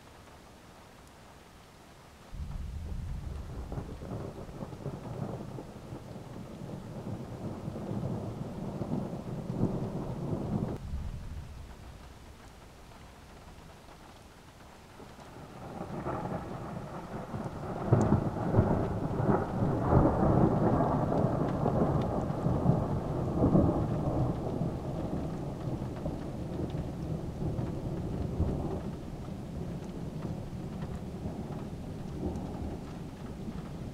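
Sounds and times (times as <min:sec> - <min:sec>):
low rumbling noise: 0:02.3 - 0:14.0.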